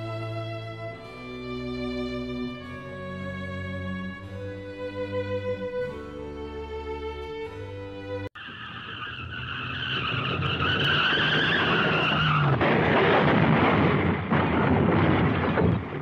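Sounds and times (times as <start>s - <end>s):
car tyres screeching: 8.4s - 13.0s
loud rough noise: 9.7s - 16.0s.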